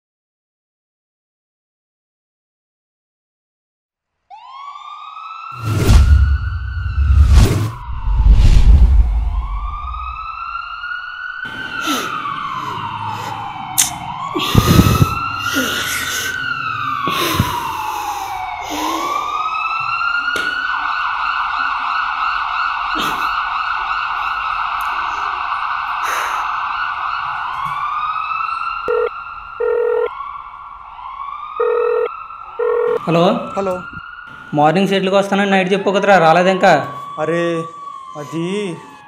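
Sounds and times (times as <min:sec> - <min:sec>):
emergency siren wailing: 0:04.3 - 0:39.0
deep rumbling boom: 0:05.7 - 0:10.3.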